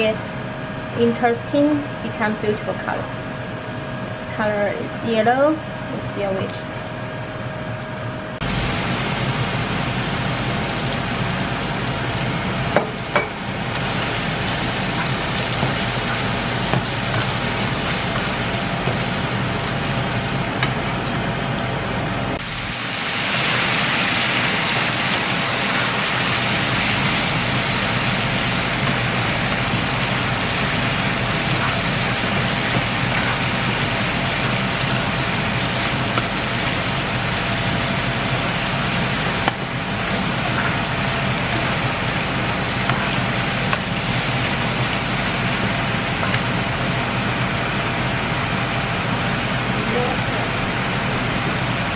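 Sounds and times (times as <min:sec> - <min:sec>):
food sizzling in hot oil: 0:08.4 - 0:49.5.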